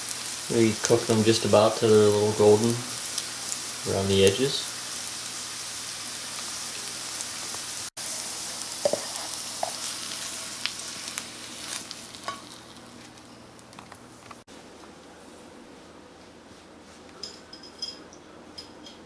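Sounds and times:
mushrooms sizzling in frying pan: 0.0s - 13.8s
spatula scraping pan: 8.8s - 9.9s.

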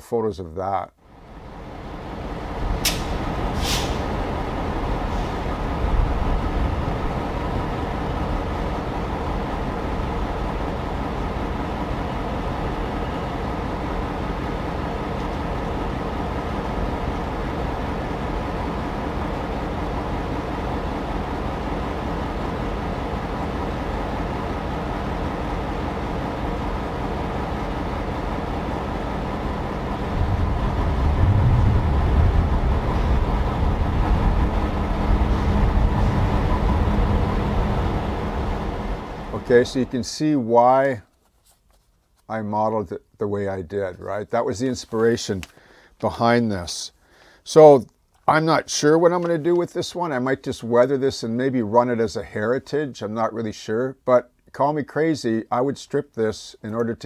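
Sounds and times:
diesel locomotive engine running: 0.9s - 41.0s
air hiss: 2.8s - 4.3s, 5.0s - 5.6s.

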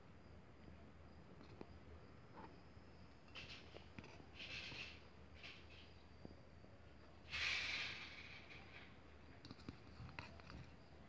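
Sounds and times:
airy hiss: 7.2s - 9.1s.

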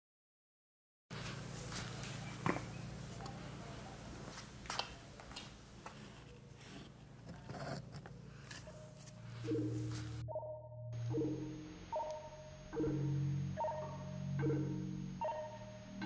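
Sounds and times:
fluorescent light humming: 1.1s - 10.2s.

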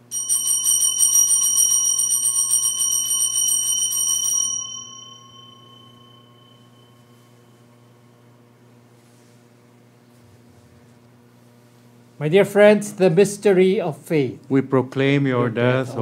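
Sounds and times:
altar bell ringing: 0.0s - 8.1s.

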